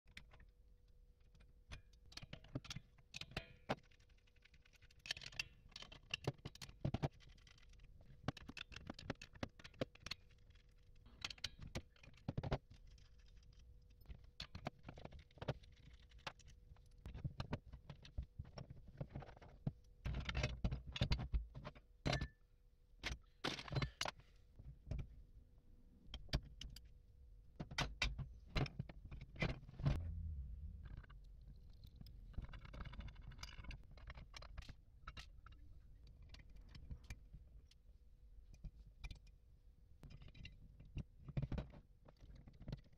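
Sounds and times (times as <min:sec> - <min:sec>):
metallic clicks and scrapes: 0:27.7 - 0:37.2.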